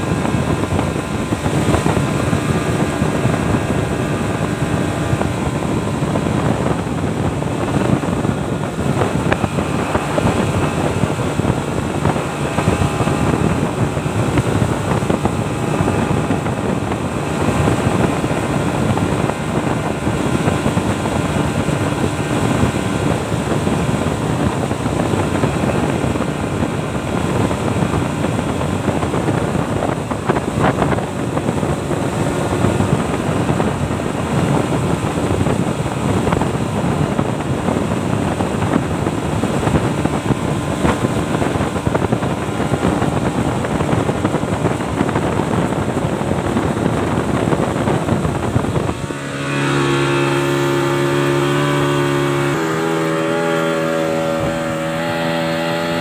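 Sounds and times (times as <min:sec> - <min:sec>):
outboard motor running: 0:00.0 - 0:56.0
water rushing along hull: 0:00.0 - 0:56.0.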